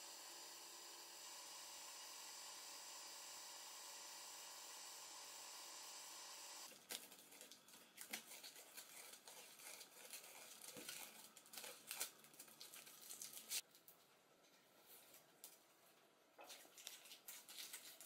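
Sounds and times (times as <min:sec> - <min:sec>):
tape crinkling and tearing: 0:06.7 - 0:14.0, 0:16.6 - 0:18.0.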